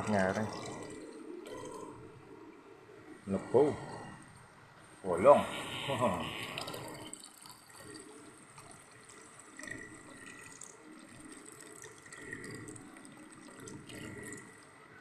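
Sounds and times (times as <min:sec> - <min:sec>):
liquid trickling into container: 0:06.4 - 0:14.9.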